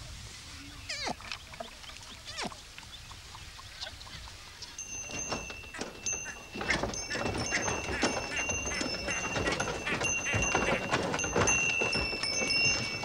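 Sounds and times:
short knocks: 0:05.0 - 0:13.0.

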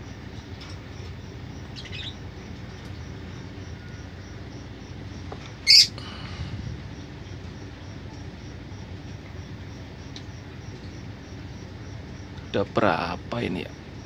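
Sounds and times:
birds squeaking: 0:00.0 - 0:12.6
bird squawking: 0:05.6 - 0:06.0.

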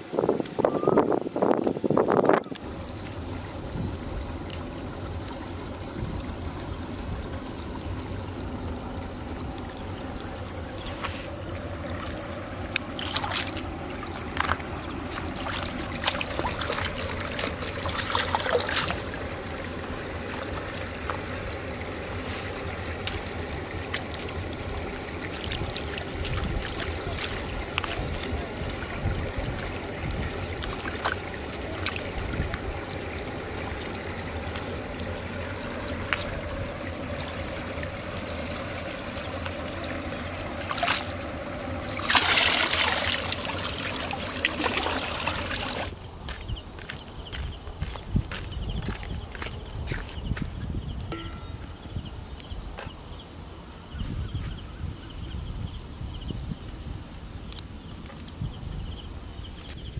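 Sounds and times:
water splashing and trickling: 0:00.0 - 0:59.9.

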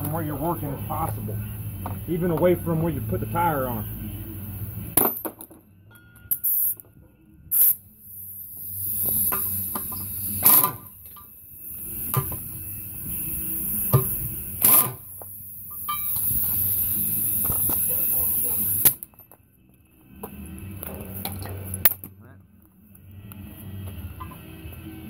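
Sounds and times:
pneumatic impact wrench bursts: 0:07.5 - 0:19.1.

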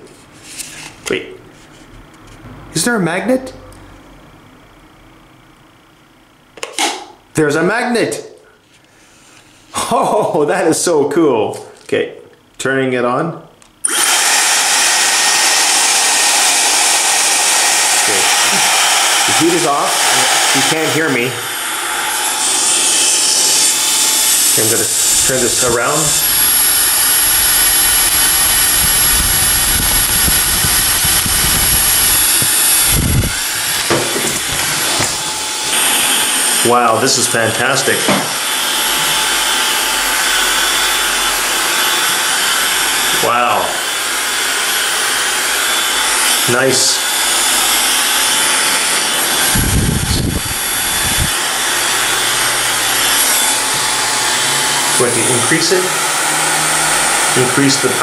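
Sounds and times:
hair dryer blowing air: 0:13.8 - 0:58.0
airflow rumbling on microphone: 0:25.1 - 0:33.8, 0:49.5 - 0:51.4.

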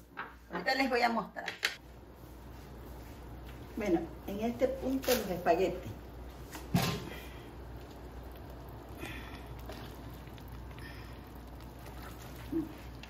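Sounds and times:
steady low hum: 0:01.8 - 0:13.0
wet stirring: 0:04.8 - 0:13.0
water bubbling: 0:07.6 - 0:13.0.

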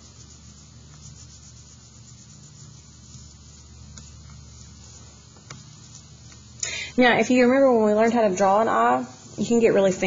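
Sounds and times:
oil pastel scratching on paper: 0:00.0 - 0:06.6
steady low hum: 0:00.0 - 0:10.0.

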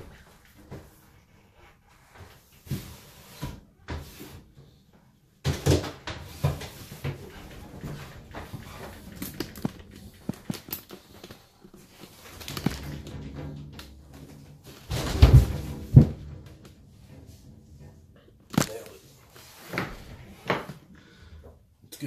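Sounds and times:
knocks and rattles: 0:05.4 - 0:21.6
loud clatter: 0:05.6 - 0:20.6.

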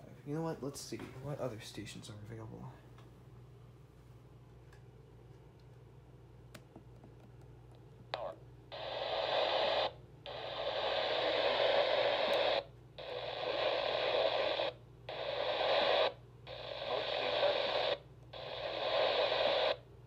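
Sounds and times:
radio static hiss: 0:08.1 - 0:19.8.

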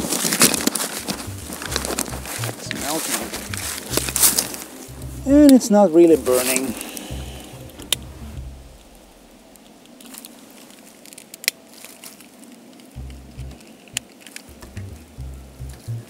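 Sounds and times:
wind rumble on microphone: 0:06.2 - 0:09.6.

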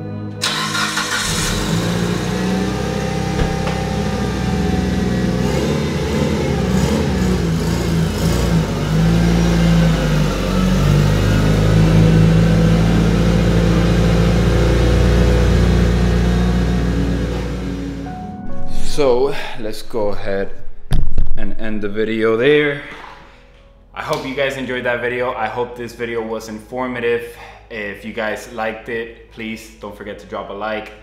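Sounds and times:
car engine at low revs: 0:01.2 - 0:18.1.

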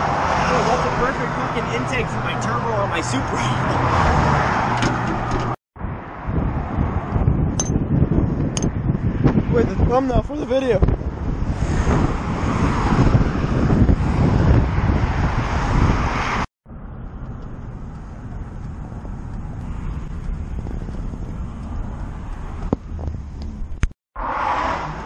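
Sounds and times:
road and engine hum in truck cab: 0:00.0 - 0:09.7, 0:10.9 - 0:25.0
highway traffic noise: 0:00.0 - 0:25.0
wind buffeting microphone: 0:00.8 - 0:23.9.

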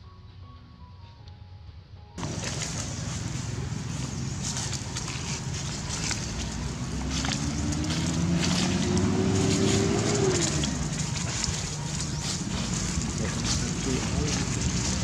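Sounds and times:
leaves rustling: 0:02.2 - 0:15.0
vehicle engine passing by: 0:02.2 - 0:15.0.

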